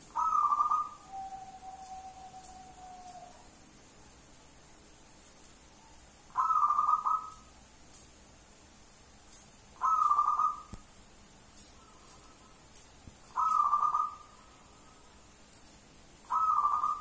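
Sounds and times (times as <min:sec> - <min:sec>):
dove cooing shrilly: 0:00.1 - 0:03.5, 0:06.3 - 0:07.4, 0:09.8 - 0:10.7, 0:13.3 - 0:14.4, 0:16.3 - 0:17.0.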